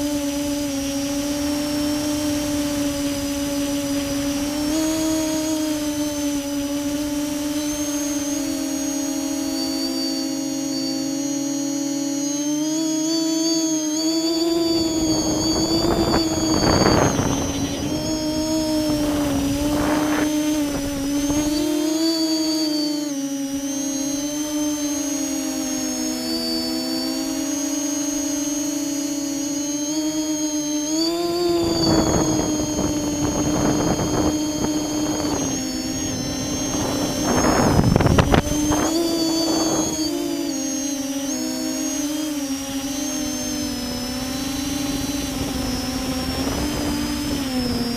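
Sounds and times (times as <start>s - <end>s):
wind on microphone: 0.0s - 10.7s, 14.0s - 22.9s, 29.9s - 47.9s
drone motors whining: 0.0s - 47.9s.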